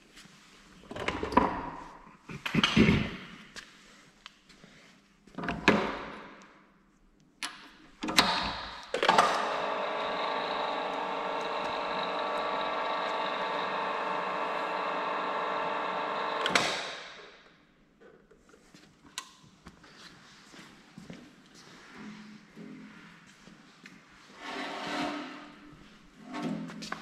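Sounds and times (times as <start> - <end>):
machine stopping clunk: 9.0 - 16.9
electric drive humming: 9.1 - 16.7.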